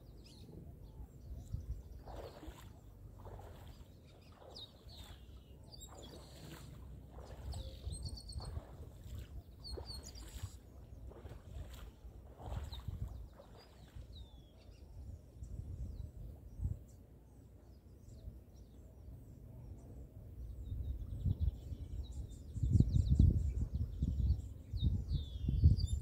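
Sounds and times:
wind buffeting microphone: 0.3s - 17.0s, 20.5s - 26.0s.

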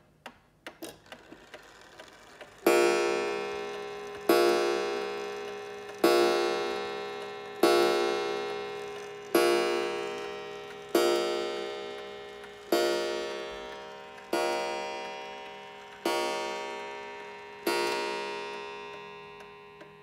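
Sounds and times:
clock striking wire gong: 2.2s - 20.0s.

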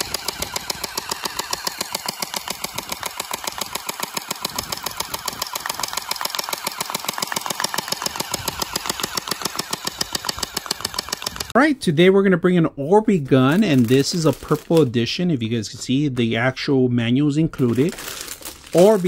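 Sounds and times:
gel blaster rapid firing: 0.0s - 11.5s
motor and gearbox whir: 0.0s - 11.6s.

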